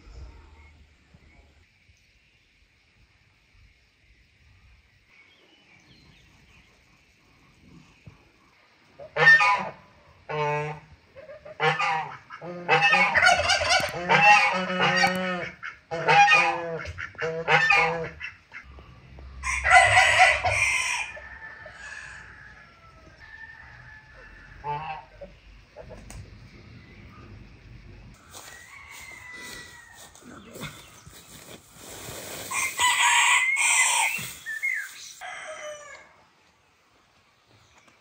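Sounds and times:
geese honking: 0:09.0 - 0:10.8, 0:11.4 - 0:18.8, 0:24.6 - 0:26.0
rooster crowing: 0:19.4 - 0:25.2, 0:28.2 - 0:30.4, 0:32.5 - 0:36.2.

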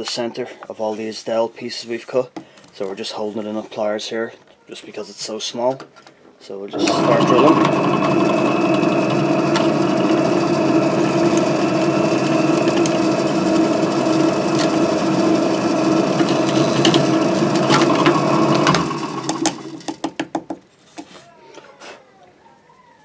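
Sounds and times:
drill press boring wood: 0:06.7 - 0:20.2.

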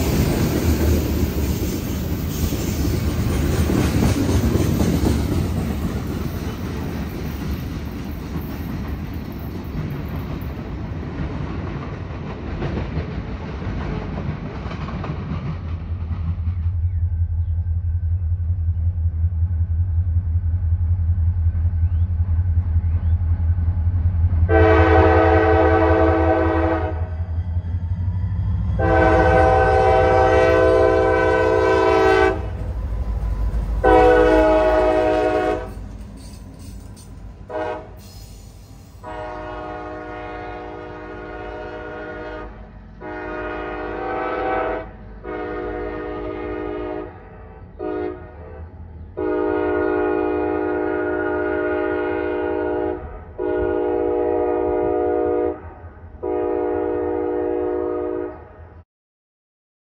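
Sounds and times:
diesel locomotive rumbling: 0:00.0 - 0:58.8
distant locomotive horn: 0:24.4 - 0:36.7, 0:37.4 - 0:58.8
locomotive air horn: 0:24.5 - 0:27.2, 0:28.8 - 0:32.6, 0:33.8 - 0:35.9, 0:37.5 - 0:58.5.

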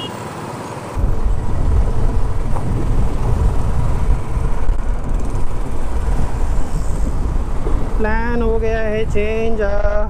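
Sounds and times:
road noise: 0:00.0 - 0:10.0
motorcycle engine: 0:00.9 - 0:08.0
wind buffeting microphone: 0:01.0 - 0:10.0.

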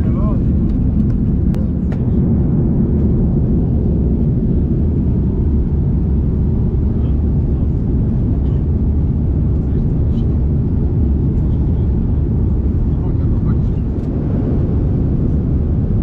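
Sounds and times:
airplane cabin roar: 0:00.0 - 0:16.0.

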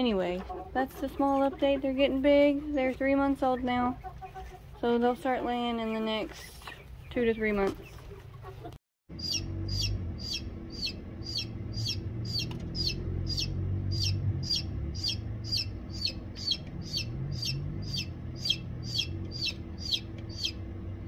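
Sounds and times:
chick peeping: 0:00.1 - 0:20.7
low steady hum: 0:09.1 - 0:21.0.

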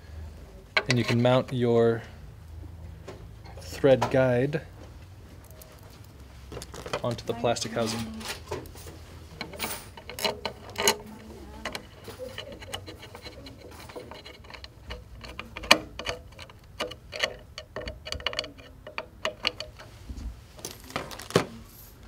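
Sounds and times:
small parts being handled: 0:05.3 - 0:20.0, 0:20.6 - 0:22.0.

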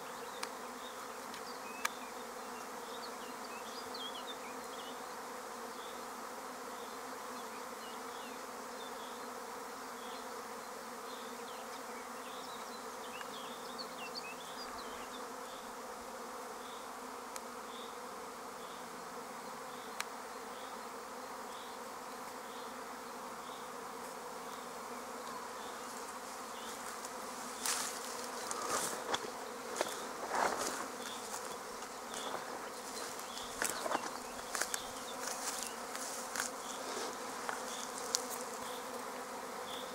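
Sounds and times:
bee swarm buzzing: 0:00.0 - 0:39.9
rustles and clicks: 0:26.7 - 0:38.6.

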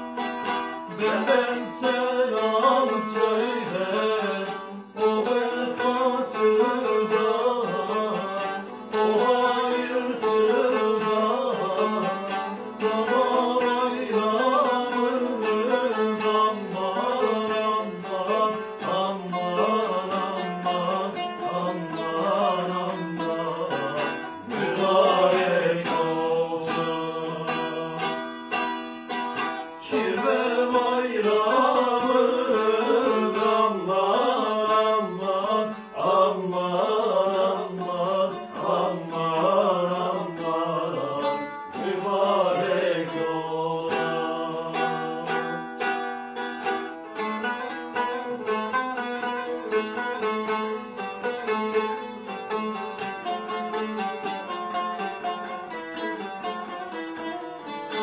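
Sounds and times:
long-necked lutes plucked and strummed: 0:00.0 - 0:58.0.

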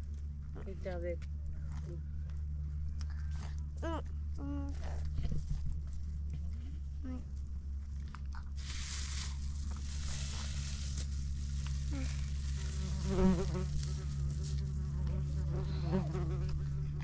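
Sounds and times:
insects buzzing: 0:09.8 - 0:17.0.

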